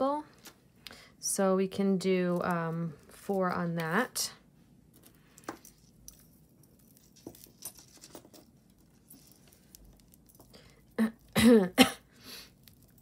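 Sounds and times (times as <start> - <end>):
jewelry clicking and rustling: 4.8 - 11.4, 12.4 - 13.0
woman clearing her throat: 11.0 - 12.1.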